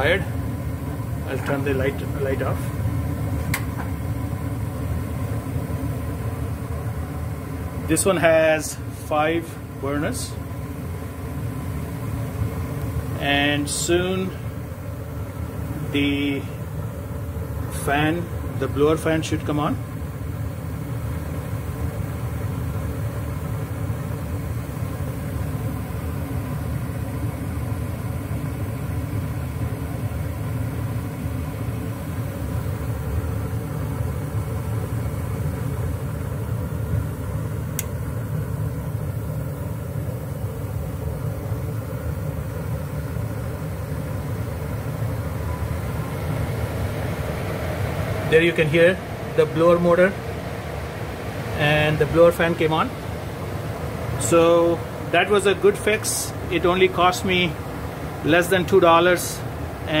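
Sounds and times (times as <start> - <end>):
gas furnace rumbling: 0.0 - 60.0.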